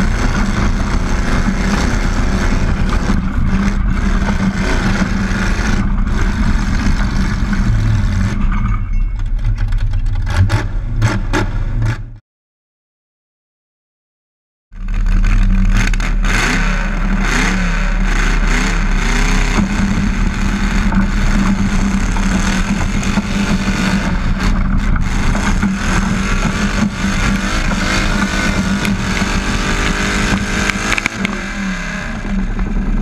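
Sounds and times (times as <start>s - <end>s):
tractor engine at high revs: 0.0s - 12.2s, 14.8s - 33.0s.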